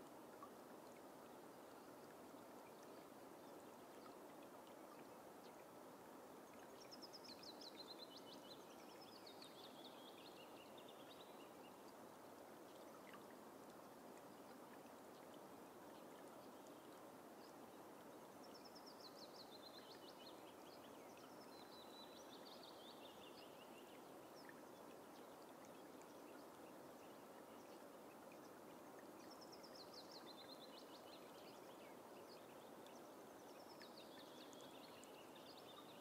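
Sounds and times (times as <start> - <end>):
background hiss: 0.0 - 36.0.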